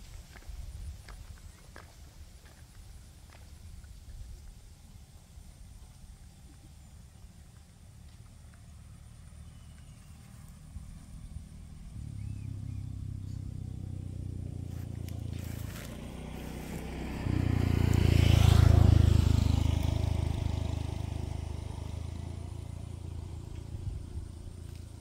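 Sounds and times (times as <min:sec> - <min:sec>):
vehicle engine passing by: 0:06.2 - 0:25.0.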